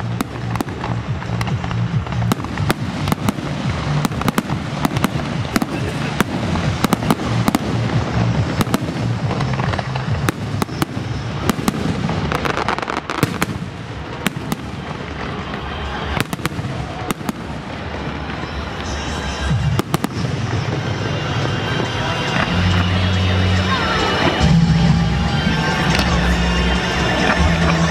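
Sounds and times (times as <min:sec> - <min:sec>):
music with steady bass line: 0:00.0 - 0:13.0, 0:19.0 - 0:27.9
fireworks bangs and crackles: 0:00.0 - 0:27.9.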